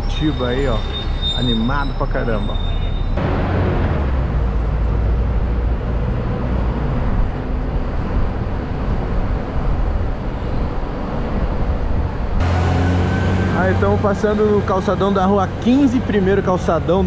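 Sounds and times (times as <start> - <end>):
bus rumble and road noise: 0.0 - 17.0
city traffic: 0.0 - 17.0.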